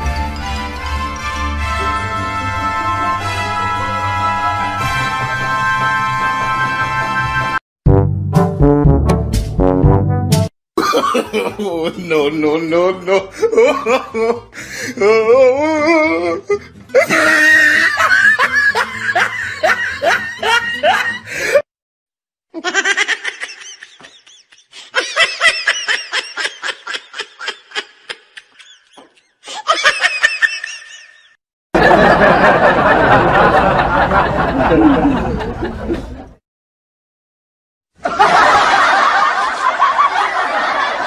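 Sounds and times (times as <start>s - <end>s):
person laughing: 10.8s - 21.6s, 22.6s - 31.4s, 34.5s - 36.1s.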